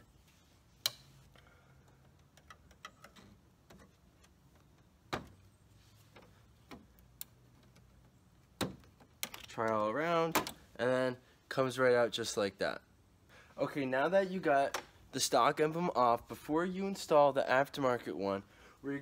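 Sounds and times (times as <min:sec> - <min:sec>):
tool clicks and taps on metal: 0:00.8 - 0:04.9.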